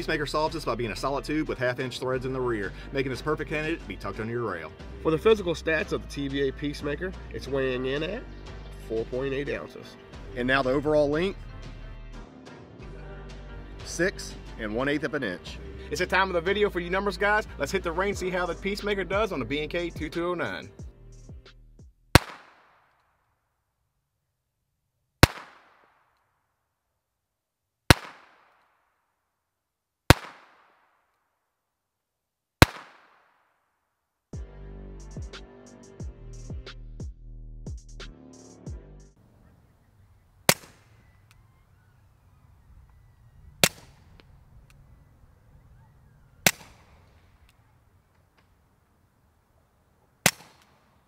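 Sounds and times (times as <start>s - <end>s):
suppressed gunshots: 22.1s - 22.8s, 25.2s - 26.0s, 27.9s - 28.6s, 30.1s - 30.8s, 32.6s - 33.3s, 40.5s - 41.1s, 43.6s - 44.4s, 46.4s - 47.3s, 50.2s - 50.8s
pistol shots with echo: 22.2s - 22.8s, 25.2s - 26.0s, 27.9s - 28.5s, 30.1s - 30.8s, 32.6s - 33.3s, 40.5s - 41.1s, 43.6s - 44.2s, 46.4s - 47.2s, 50.2s - 50.8s.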